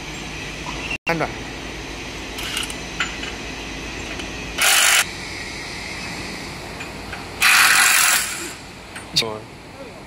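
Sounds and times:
loud burst of hiss: 7.4s - 8.7s.

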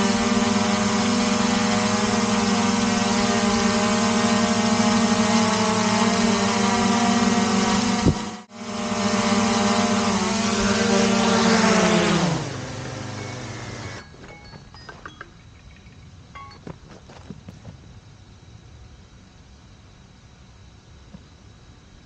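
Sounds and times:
drone buzzing: 0.0s - 14.2s
drone motors spinning down: 0.0s - 15.1s.

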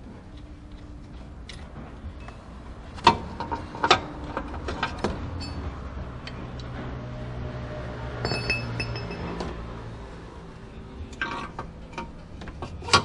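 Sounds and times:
clicks and knocks of metal parts: 11.1s - 13.0s.

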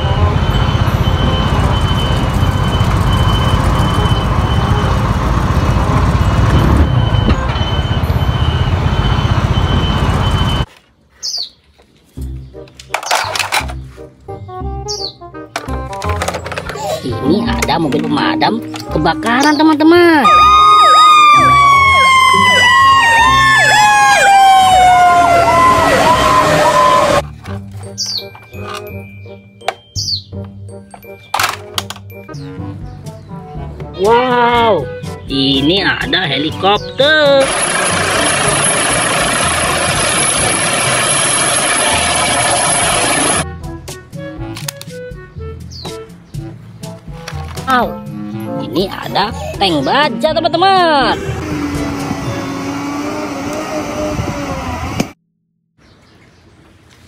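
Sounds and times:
diesel engine rumble: 0.0s - 10.7s, 15.4s - 28.6s, 31.3s - 43.8s, 46.1s - 55.2s
high warning beeper: 0.0s - 10.7s
siren wailing: 0.0s - 10.7s, 20.0s - 27.2s, 37.0s - 43.4s
siren yelping: 0.0s - 10.7s, 20.0s - 27.2s, 36.9s - 43.4s
traffic noise: 0.0s - 12.1s, 15.5s - 29.0s, 29.7s - 43.4s, 45.6s - 55.2s.

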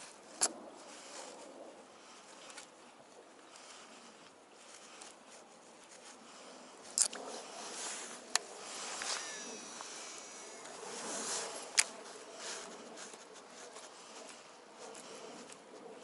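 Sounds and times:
fishing reel brake buzzing whine: 7.4s - 12.8s
sharp reel click: 8.3s - 12.0s.

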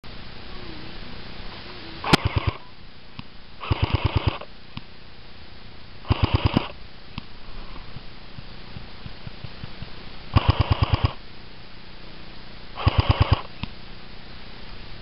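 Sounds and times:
airsoft rifle full-auto bursts: 2.1s - 2.6s, 3.6s - 4.5s, 6.0s - 6.8s, 10.3s - 11.2s, 12.8s - 13.5s.

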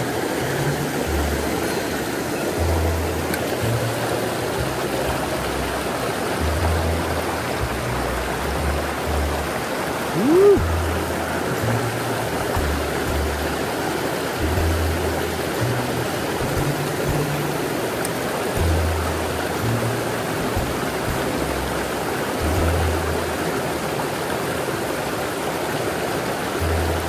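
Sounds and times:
low bass background music: 0.0s - 27.0s
stream rushing over rocks: 0.0s - 27.0s
short rising and falling tone: 10.2s - 11.0s.

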